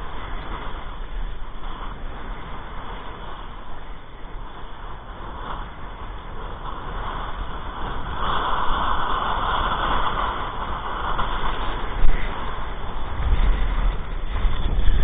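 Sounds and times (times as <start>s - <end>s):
kiteboard hissing across water: 0.0s - 15.0s
wind buffeting microphone: 0.0s - 15.0s.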